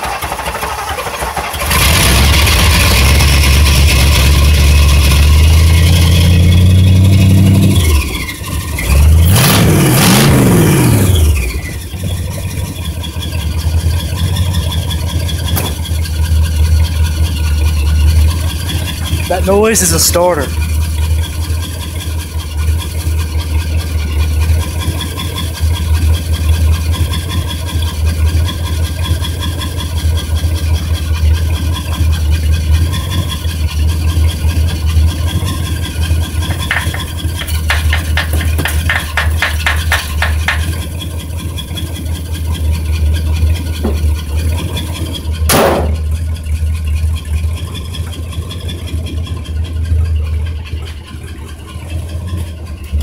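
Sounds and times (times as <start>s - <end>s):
car engine idling: 0.0s - 9.5s, 10.1s - 53.0s
loud knock: 36.5s - 40.7s, 45.5s - 46.0s.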